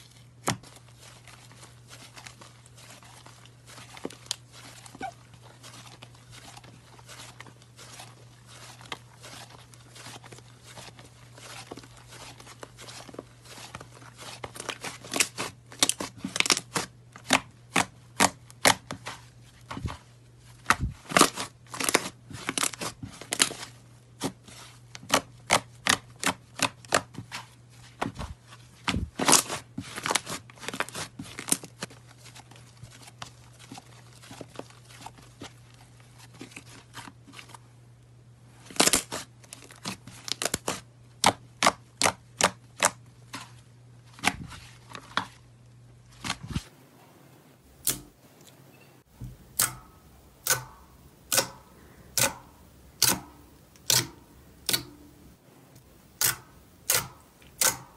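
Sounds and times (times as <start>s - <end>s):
low steady hum: 43.0s - 57.9s.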